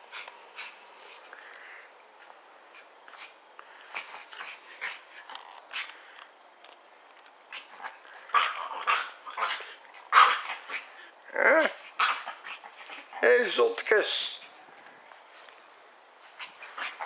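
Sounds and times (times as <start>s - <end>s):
dogs growling: 7.5s - 13.2s
dogs barking: 8.3s - 10.8s.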